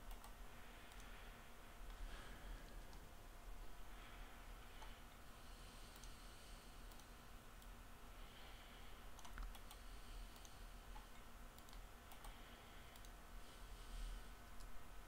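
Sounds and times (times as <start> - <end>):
keyboard and mouse clicks: 0.0 - 1.1, 6.9 - 7.8, 9.2 - 13.2
low steady hum: 0.0 - 15.0.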